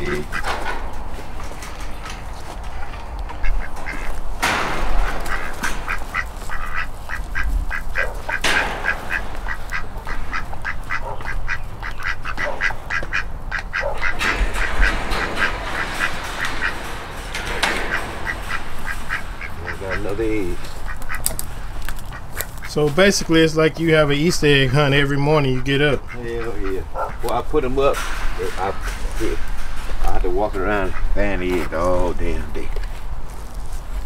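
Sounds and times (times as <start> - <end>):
ducks quacking: 0.0 - 32.5
sharp knocks: 3.4 - 11.4, 13.8 - 21.4.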